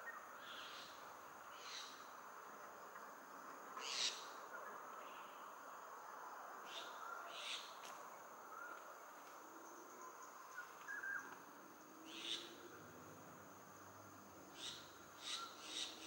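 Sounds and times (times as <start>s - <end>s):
high insect drone: 0.0s - 16.0s.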